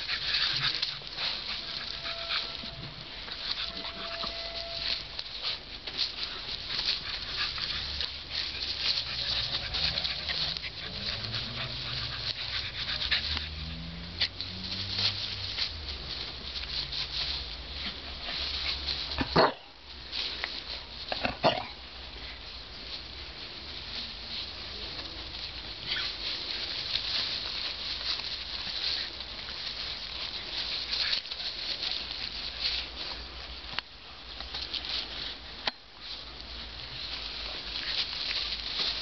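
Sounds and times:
rustling and scuffling in grass: 0.0s - 39.0s
puppies growling: 5.4s - 19.4s.

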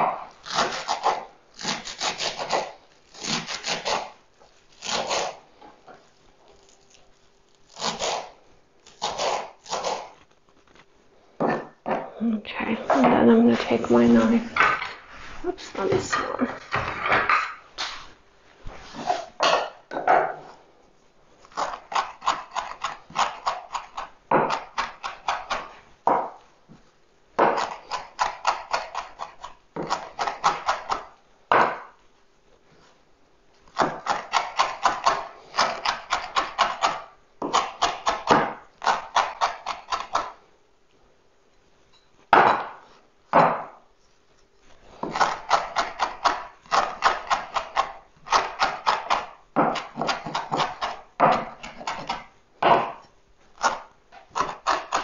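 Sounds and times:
knife chopping on wooden board: 7.8s - 10.2s, 19.0s - 20.4s, 21.5s - 26.4s, 27.4s - 32.0s, 33.7s - 40.4s, 42.3s - 43.8s, 44.9s - 55.0s.

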